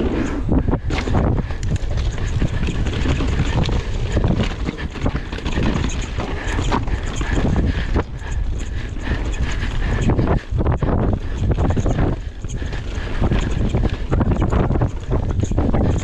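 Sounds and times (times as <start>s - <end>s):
bike rattling over rocks: 0.0s - 16.0s
wind buffeting microphone: 0.0s - 16.0s.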